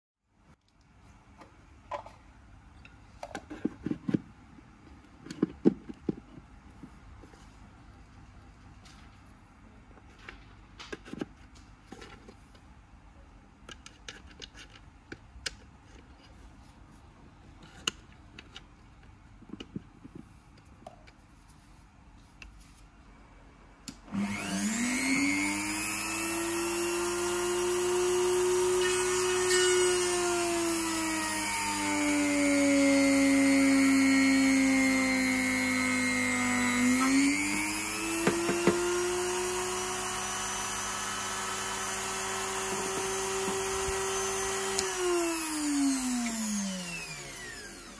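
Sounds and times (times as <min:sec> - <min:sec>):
rotary tool whine: 0:24.1 - 0:47.9
drill bit boring into wood: 0:24.2 - 0:47.9.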